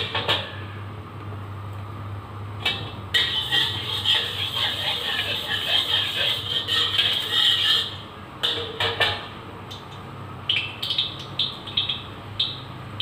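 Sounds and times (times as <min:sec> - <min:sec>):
metal spatula knocking and scraping wok: 0:02.6 - 0:09.4.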